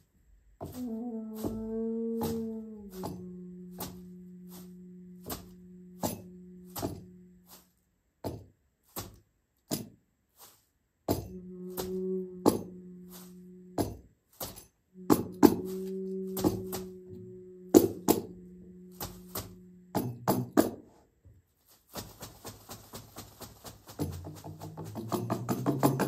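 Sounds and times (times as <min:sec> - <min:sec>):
end-blown flute low notes: 0:00.7 - 0:07.6, 0:11.3 - 0:13.8, 0:15.0 - 0:20.0
light ticking percussion: 0:21.9 - 0:26.0.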